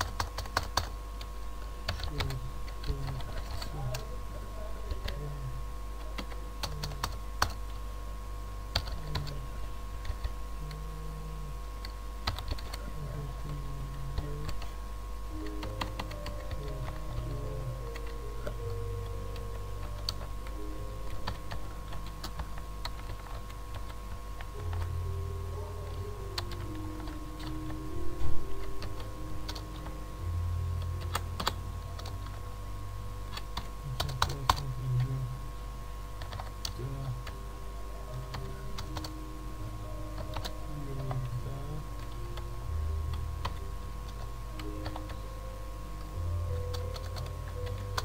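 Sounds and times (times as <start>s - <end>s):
keyboard typing: 0.0s - 4.1s, 6.0s - 7.8s, 8.7s - 9.4s, 10.0s - 10.9s, 11.8s - 30.0s, 30.8s - 32.5s, 33.3s - 35.2s, 36.2s - 37.4s, 38.1s - 39.2s, 40.0s - 41.4s, 43.1s - 45.4s, 46.0s - 48.0s
low steady hum: 0.0s - 48.0s.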